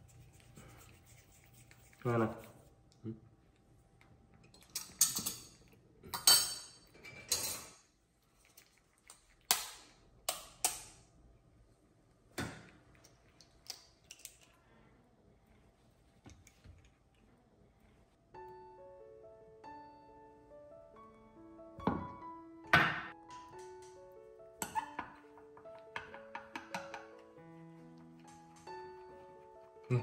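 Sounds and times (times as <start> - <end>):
hands brushed together: 0.0 - 2.7
music: 18.3 - 30.0.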